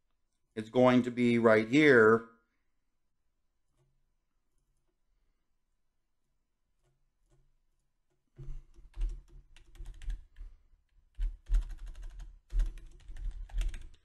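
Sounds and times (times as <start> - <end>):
computer keyboard typing: 8.4 - 14.0.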